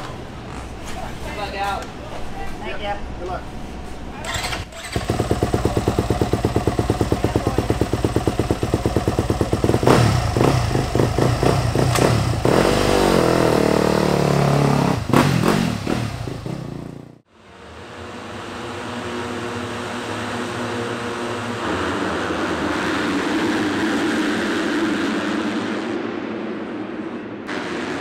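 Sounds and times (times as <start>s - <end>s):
motocross engine idling and revving: 4.3s - 17.2s, 18.1s - 26.0s.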